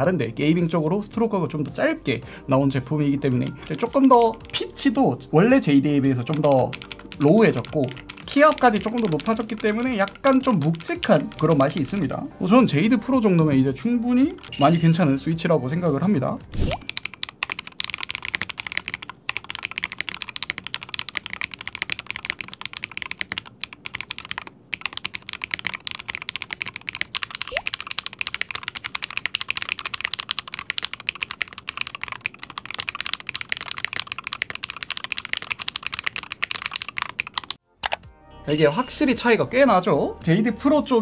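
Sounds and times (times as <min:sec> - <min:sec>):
keyboard typing clacks: 0:03.3 - 0:04.9, 0:05.5 - 0:15.2, 0:16.8 - 0:38.0.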